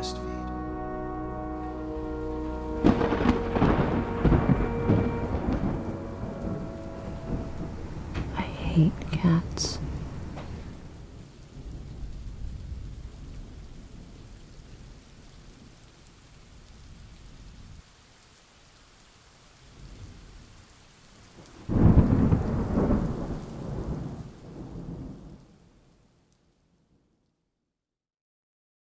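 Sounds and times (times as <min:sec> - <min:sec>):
rain falling: 0:00.0 - 0:27.0
low rolling thunder: 0:00.7 - 0:15.8, 0:21.3 - 0:25.6
loud thunderclap: 0:02.1 - 0:14.2, 0:21.5 - 0:25.4.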